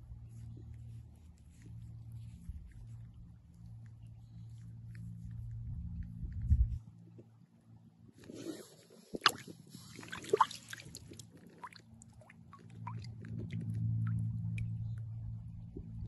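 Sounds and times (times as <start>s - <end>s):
low steady hum: 0.0s - 16.0s
water trickling and dripping: 9.2s - 15.1s.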